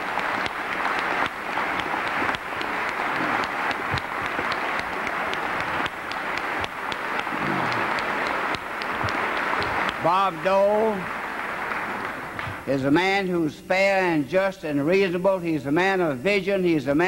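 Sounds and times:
crowd applauding: 0:00.0 - 0:12.9.

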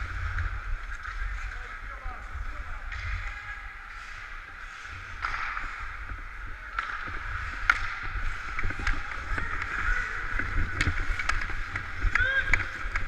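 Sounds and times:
hockey sticks and puck clicking: 0:00.1 - 0:02.0, 0:02.7 - 0:13.0
skate blades scraping on ice: 0:03.9 - 0:13.0
wind rumble on microphone: 0:06.0 - 0:13.0.

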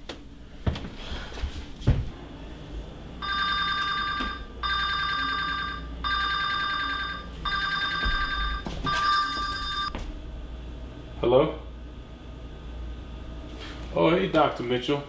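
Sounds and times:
smartphone ringtone: 0:03.2 - 0:09.9.

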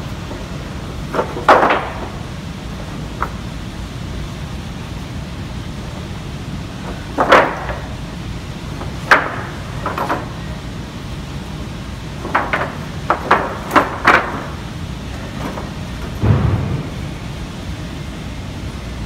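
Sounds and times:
steady low hum: 0:00.0 - 0:19.0
wooden boards knocking together: 0:01.1 - 0:02.2, 0:06.9 - 0:07.9, 0:08.8 - 0:10.4, 0:12.2 - 0:14.6.

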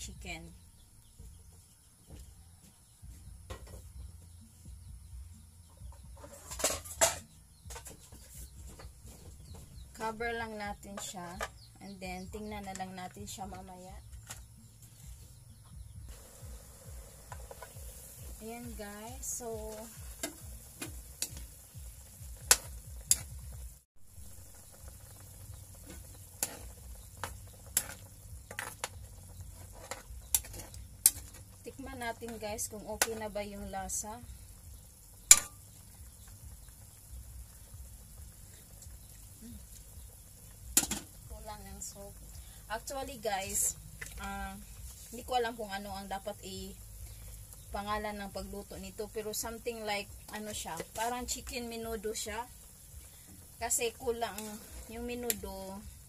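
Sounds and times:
metal cookware clanks: 0:06.2 - 0:07.8
food simmering in a wok: 0:16.0 - 0:56.0.

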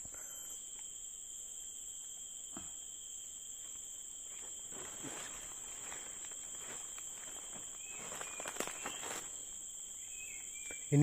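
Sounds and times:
high-pitched insect drone: 0:00.0 - 0:11.0
faint rustling: 0:03.7 - 0:09.6.

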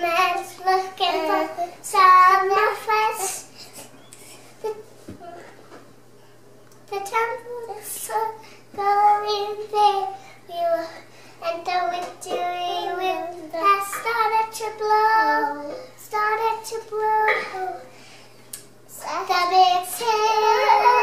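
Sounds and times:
child singing unaccompanied: 0:00.0 - 0:03.5, 0:06.9 - 0:17.8, 0:18.9 - 0:21.0.

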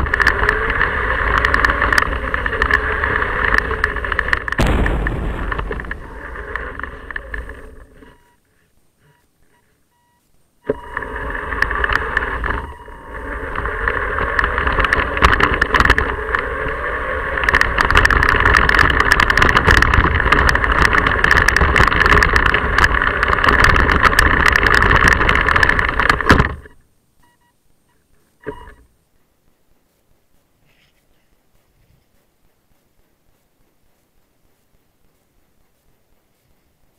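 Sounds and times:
small vehicle rattling over rough pavement: 0:00.0 - 0:08.4, 0:10.6 - 0:26.8.

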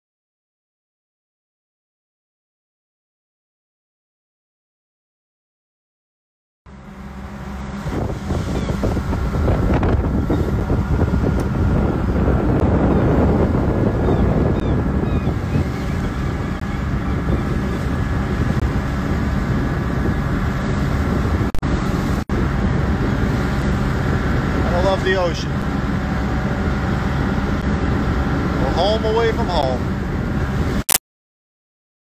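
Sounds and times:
water rushing past hull: 0:06.7 - 0:30.8
wind buffeting microphone: 0:06.7 - 0:30.8
boat engine running: 0:06.7 - 0:30.9.

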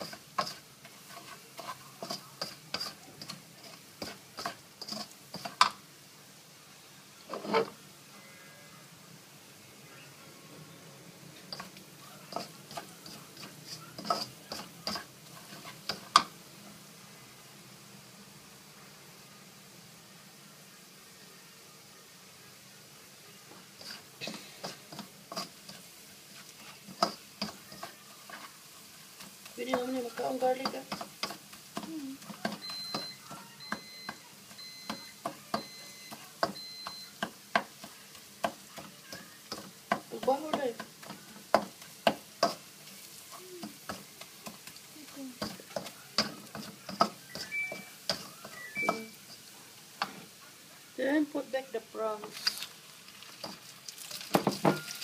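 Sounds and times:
spatula scraping a metal wok: 0:00.0 - 0:05.8, 0:07.3 - 0:07.8, 0:11.4 - 0:16.3, 0:23.7 - 0:33.1, 0:33.7 - 0:50.3
high beeps: 0:32.6 - 0:37.2, 0:47.2 - 0:49.2.

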